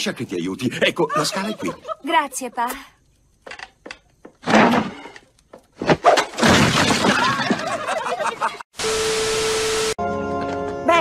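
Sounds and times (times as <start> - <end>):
people laughing loudly: 0.6 - 2.1, 7.2 - 8.7
cartoon crash with breaking: 5.8 - 7.8.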